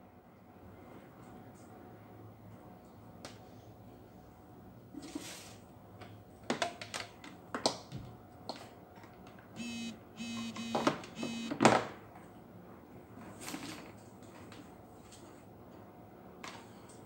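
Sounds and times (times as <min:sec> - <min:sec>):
short buzzy electronic beeps: 0:09.6 - 0:11.6.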